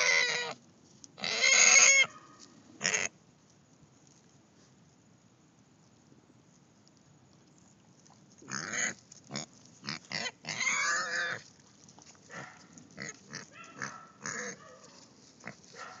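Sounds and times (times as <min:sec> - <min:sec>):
pig grunting: 0:08.4 - 0:11.4, 0:13.0 - 0:14.6.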